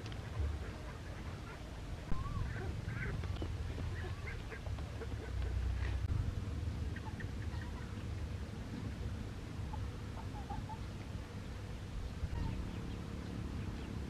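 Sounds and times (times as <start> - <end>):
low steady rumble: 0.0 - 14.0
poultry calling: 0.2 - 6.1, 9.6 - 11.0, 12.2 - 14.0.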